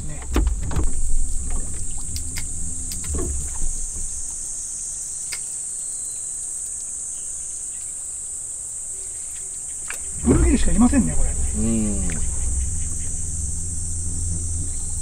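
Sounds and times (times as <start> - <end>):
low rumble: 0.0 - 4.9, 10.0 - 15.0
insects droning: 0.0 - 15.0
faint clicks: 5.2 - 5.5.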